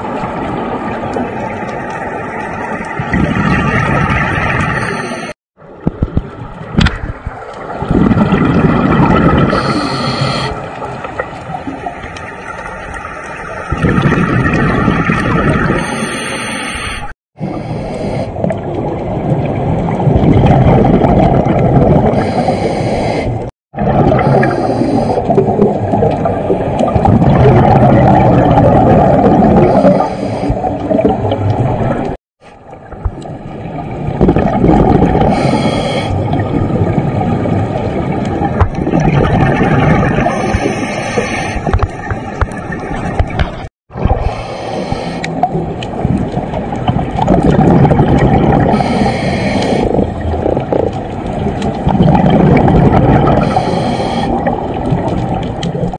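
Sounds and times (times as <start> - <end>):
exhaled bubbles underwater: 0.0 - 16.4, 17.4 - 55.9
scuba regulator breathing: 9.5 - 10.6, 15.7 - 18.4, 22.0 - 23.5, 24.1 - 25.4, 29.6 - 30.9, 35.2 - 36.4, 40.2 - 41.8, 44.0 - 45.5, 48.6 - 50.0, 53.3 - 54.5.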